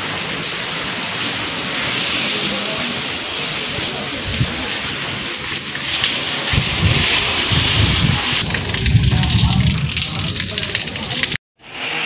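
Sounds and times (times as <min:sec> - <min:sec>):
heavy rain on pavement: 0:00.0 - 0:12.0
low rumble: 0:06.1 - 0:11.3.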